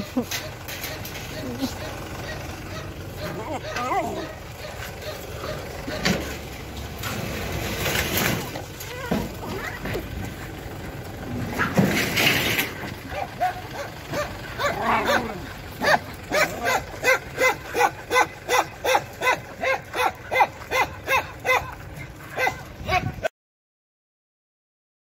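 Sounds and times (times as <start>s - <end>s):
dog barking: 0.4s - 6.3s, 13.1s - 23.2s.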